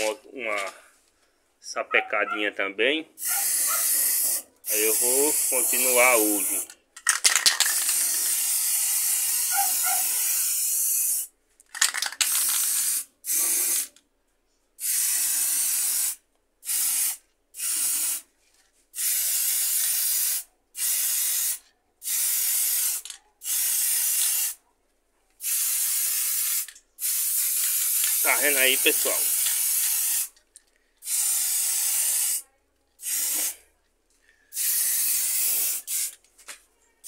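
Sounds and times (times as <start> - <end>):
spray paint can hissing: 3.2 - 13.9, 14.8 - 18.3, 18.9 - 24.6, 25.4 - 30.4, 31.0 - 32.4, 33.0 - 33.6, 34.5 - 36.2.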